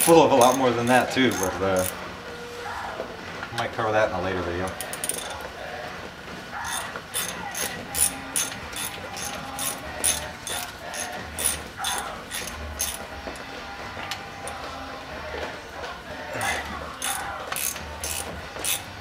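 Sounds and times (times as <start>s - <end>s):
ratchet wrench clicking: 0.0s - 2.0s, 4.7s - 5.4s, 6.7s - 13.0s, 16.9s - 18.9s.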